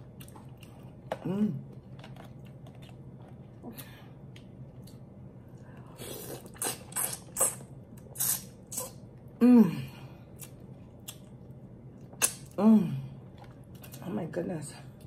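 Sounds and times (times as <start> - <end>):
wet mouth eating sounds: 5.8 - 9.0, 12.0 - 12.6.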